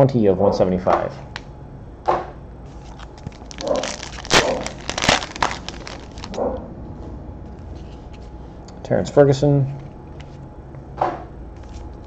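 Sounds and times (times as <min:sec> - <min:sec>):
wrapper crinkling and crackling: 0:02.8 - 0:06.4.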